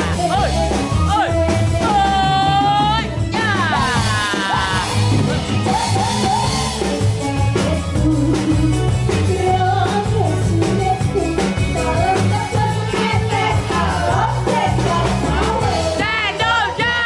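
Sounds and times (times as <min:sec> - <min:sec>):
live band playing upbeat song: 0:00.0 - 0:17.0
woman singing into microphone: 0:07.5 - 0:17.0.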